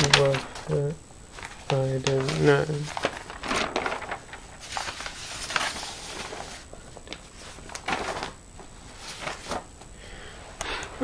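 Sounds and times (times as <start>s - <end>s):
paper rustling: 0.0s - 9.8s.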